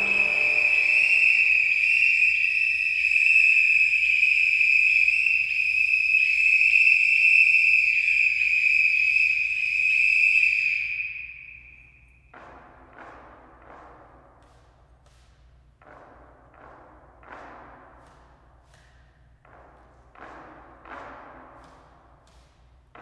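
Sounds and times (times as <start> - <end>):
police whistles blowing: 0.0 - 11.7.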